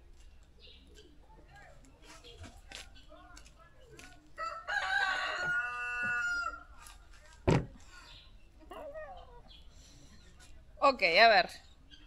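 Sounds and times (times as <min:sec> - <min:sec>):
rooster crowing: 0:04.4 - 0:06.7.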